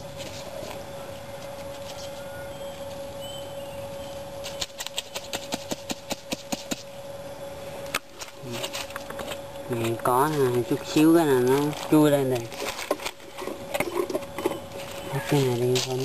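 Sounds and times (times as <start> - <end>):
steady hum: 0.0 - 16.0
digging in dry soil: 8.1 - 16.0.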